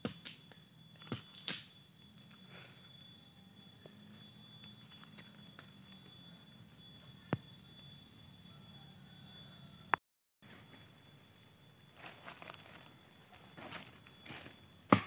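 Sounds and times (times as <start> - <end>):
twigs snapping in campfire: 0.0 - 2.4
rustling: 12.0 - 14.0.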